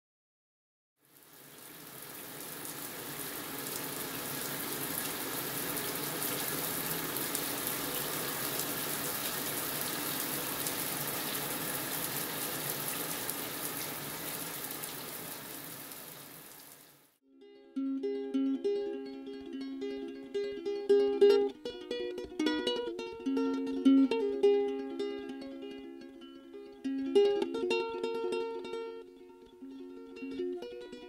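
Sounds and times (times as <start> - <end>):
tap water flowing over paper: 1.1 - 17.2.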